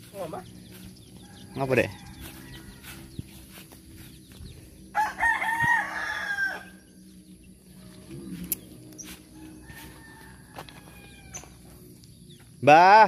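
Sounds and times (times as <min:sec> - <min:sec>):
rooster crowing: 0:01.2 - 0:03.5, 0:04.9 - 0:07.0, 0:09.1 - 0:11.8.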